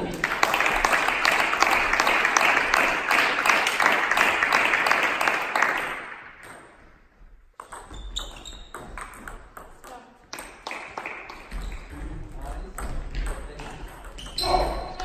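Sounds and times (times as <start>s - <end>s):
applause: 0.0s - 6.3s, 10.6s - 11.6s.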